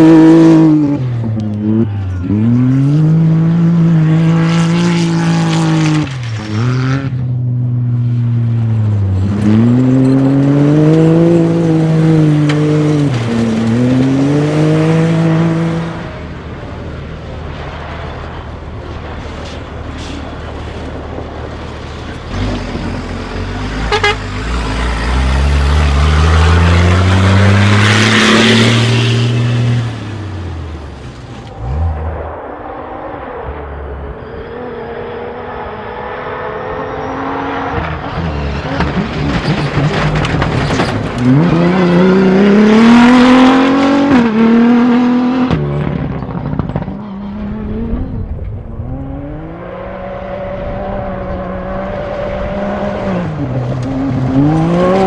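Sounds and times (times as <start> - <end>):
rally engines revving: 0.0 - 55.0.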